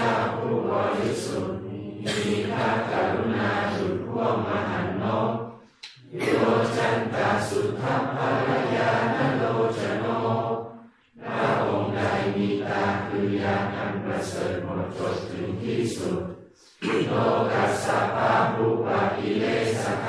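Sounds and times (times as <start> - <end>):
congregation chanting in unison: 0.0 - 20.0.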